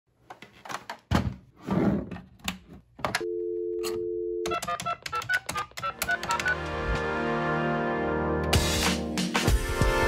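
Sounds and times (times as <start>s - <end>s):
two-tone dial tone: 3.2s - 5.0s.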